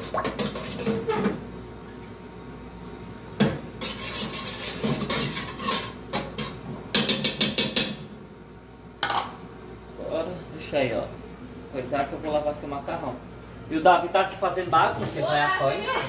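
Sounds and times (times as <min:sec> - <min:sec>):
spoon stirring sauce in pot: 0:03.8 - 0:06.5.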